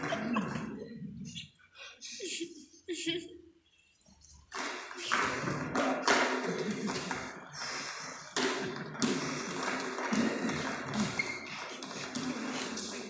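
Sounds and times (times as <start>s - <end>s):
juggling clubs knocking together: 4.5s - 7.5s, 8.2s - 13.0s.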